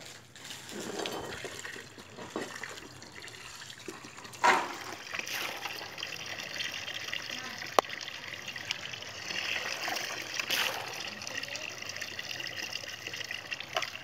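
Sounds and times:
water pouring into plastic basin: 0.0s - 14.0s
hands stirring in water: 0.2s - 6.0s
water splash: 9.3s - 11.4s.

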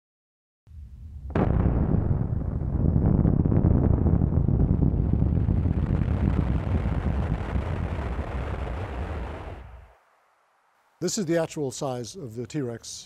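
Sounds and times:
loud low rumble: 0.7s - 9.8s
explosion crack: 0.7s - 9.9s.

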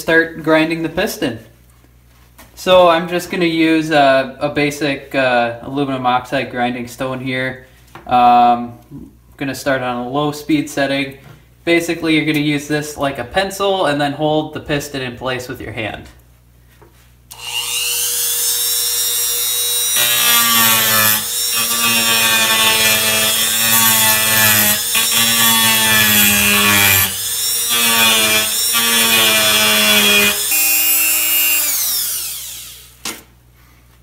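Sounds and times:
rotary tool whining: 17.3s - 33.0s
grinding stone rasping on metal: 17.4s - 32.4s.

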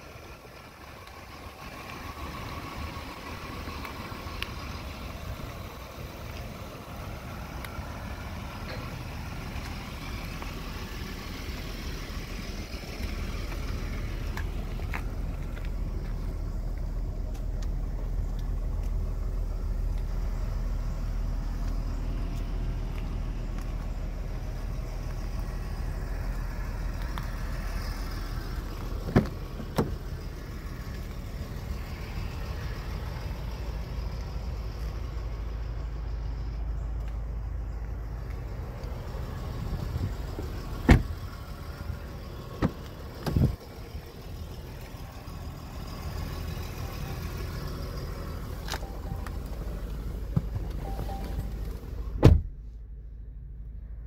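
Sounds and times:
vehicle engine idling: 0.0s - 54.0s
car door clunking open: 28.7s - 30.2s, 40.0s - 41.3s, 42.4s - 43.6s, 48.7s - 52.6s.

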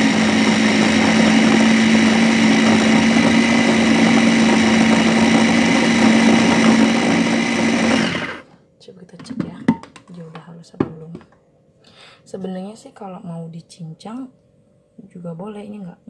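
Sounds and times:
food processor motor humming: 0.0s - 8.5s.

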